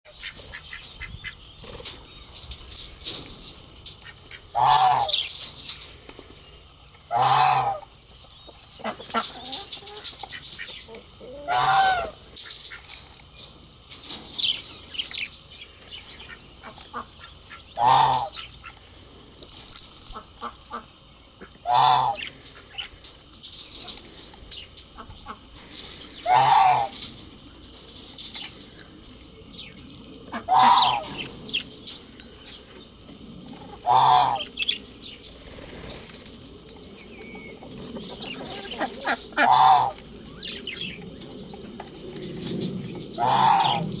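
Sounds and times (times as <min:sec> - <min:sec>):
budgerigars chirping: 0:00.1 - 0:01.6
birds pecking clicks: 0:00.1 - 0:44.0
low drawn-out animal calls: 0:26.2 - 0:27.1, 0:30.3 - 0:31.3, 0:33.7 - 0:34.6, 0:38.0 - 0:40.6, 0:43.1 - 0:44.0.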